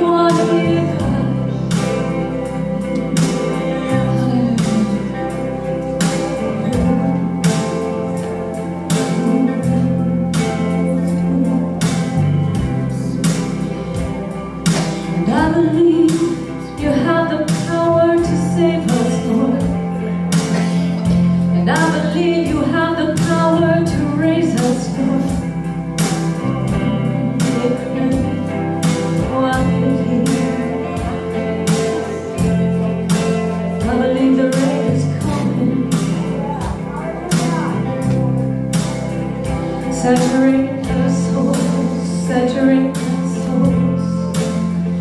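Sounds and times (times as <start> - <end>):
women singing: 0.0 - 2.2, 3.2 - 5.8, 15.0 - 19.9, 21.6 - 25.4, 26.7 - 28.6, 29.2 - 32.7, 33.8 - 36.8, 39.8 - 44.3
electric guitar: 0.0 - 45.0.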